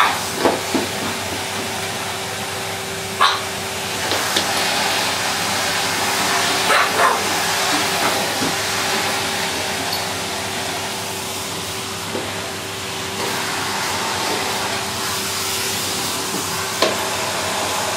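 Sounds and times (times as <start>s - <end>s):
dog barking: 0.0s - 0.2s, 3.2s - 3.5s, 6.6s - 7.4s
vacuum cleaner humming: 0.0s - 17.9s.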